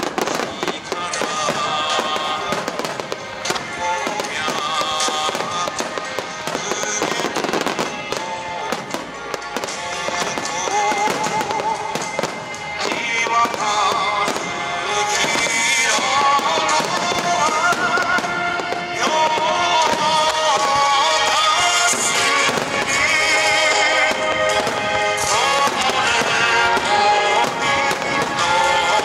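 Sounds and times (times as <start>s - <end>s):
fireworks booming: 0.0s - 29.0s
song with singing: 0.0s - 29.0s.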